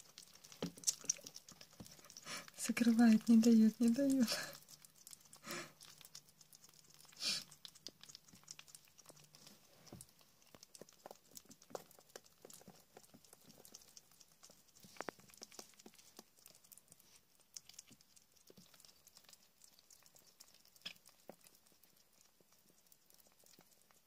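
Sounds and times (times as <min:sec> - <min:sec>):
small claws and teeth ticking on plate: 0:00.0 - 0:24.0.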